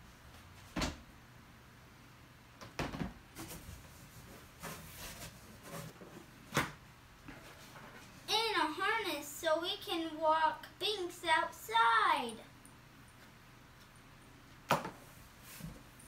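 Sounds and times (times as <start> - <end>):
items knocking and rustling: 2.6 - 8.2.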